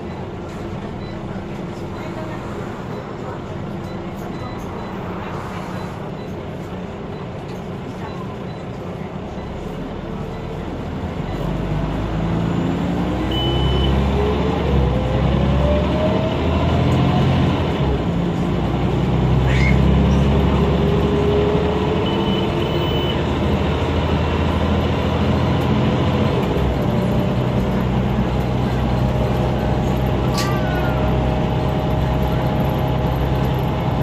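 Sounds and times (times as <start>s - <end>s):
bus engine and drivetrain: 0.0s - 34.0s
short high beep: 13.3s - 14.0s.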